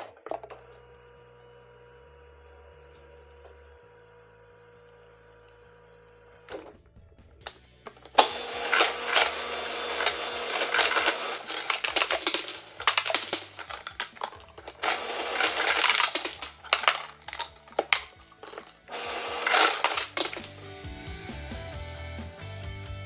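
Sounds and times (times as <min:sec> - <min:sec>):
ice cubes clattering into bottle: 0:07.9 - 0:20.6.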